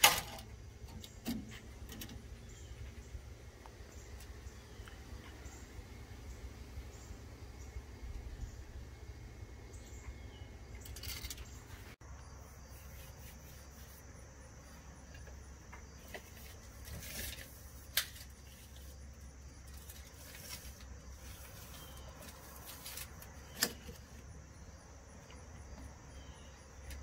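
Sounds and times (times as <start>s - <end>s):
handling clicks and rustles: 9.8s - 12.2s, 15.0s - 24.4s
high insect drone: 12.0s - 27.0s.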